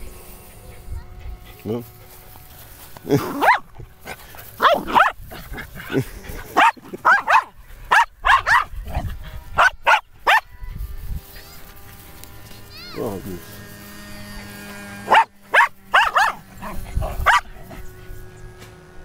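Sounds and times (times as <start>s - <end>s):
small dogs barking: 3.1s - 10.7s, 14.4s - 18.3s.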